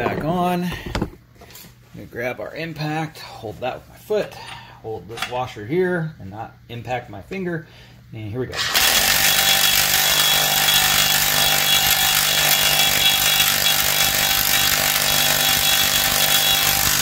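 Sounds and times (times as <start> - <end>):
impact wrench hammering: 8.8 - 17.0.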